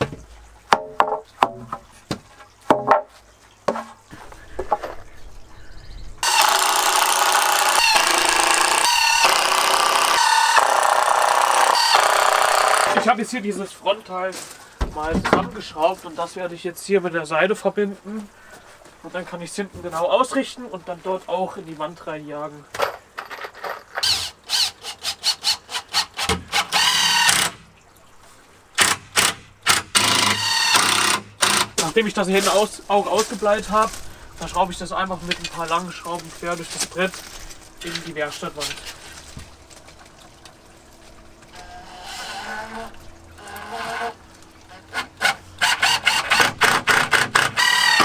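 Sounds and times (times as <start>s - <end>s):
cordless drill driving screws: 6.2s - 13.0s, 24.0s - 27.6s, 28.8s - 31.8s, 41.6s - 42.8s, 44.9s - 48.0s.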